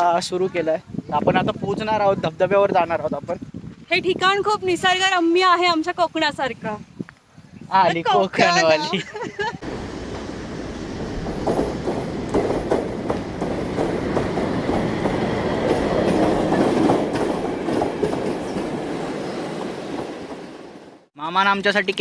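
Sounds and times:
train rumbling: 9.6s - 21.1s
wheels clacking over rail joints: 9.8s - 19.0s.

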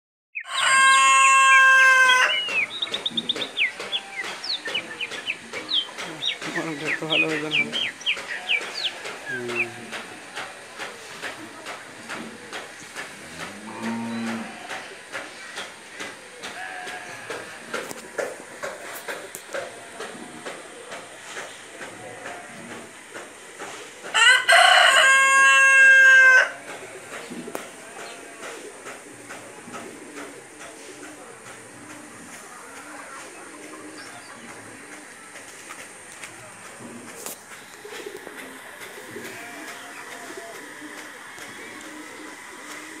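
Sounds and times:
rooster crowing: 0.4s - 2.4s, 24.1s - 26.6s
faint steady hiss: 26.4s - 43.0s.

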